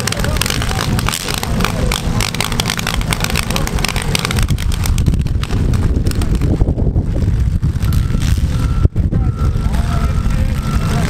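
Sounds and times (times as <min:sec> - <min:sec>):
rapid clatter of knocks: 0:00.0 - 0:06.7
car engines low rumble: 0:00.0 - 0:11.0.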